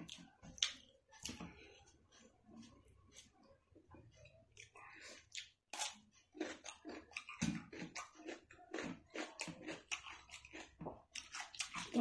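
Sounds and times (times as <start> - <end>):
wet chewing: 0.0 - 1.8, 4.5 - 12.0.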